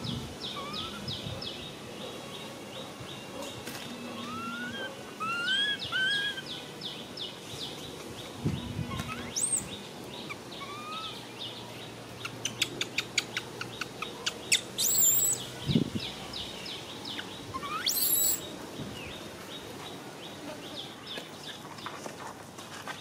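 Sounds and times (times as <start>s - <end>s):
birds chirping: 0.0s - 23.0s
rising bird whistles: 14.8s - 15.4s, 17.6s - 18.4s.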